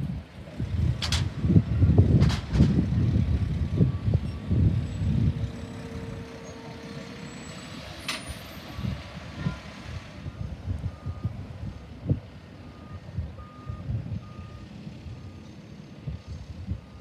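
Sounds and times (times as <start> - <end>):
garbage truck diesel engine: 0.0 - 17.0.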